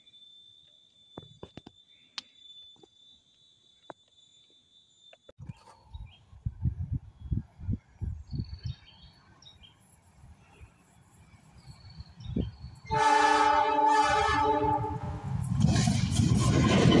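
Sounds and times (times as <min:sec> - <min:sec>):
wind gusts on microphone: 0:05.4 - 0:09.0, 0:11.5 - 0:13.0, 0:14.0 - 0:17.0
diesel locomotive horn blast: 0:12.8 - 0:15.3.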